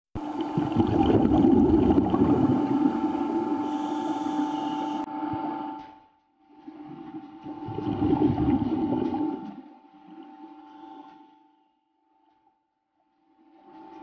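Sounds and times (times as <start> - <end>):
air bubbling underwater: 0.2 - 3.6, 7.5 - 9.6
steady hum: 0.2 - 11.6.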